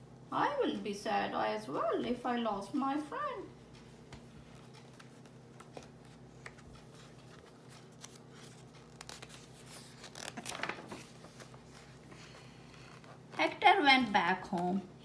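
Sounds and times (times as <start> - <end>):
faint paper handling ticks: 4.2 - 13.6
paper page rustling: 4.5 - 13.4.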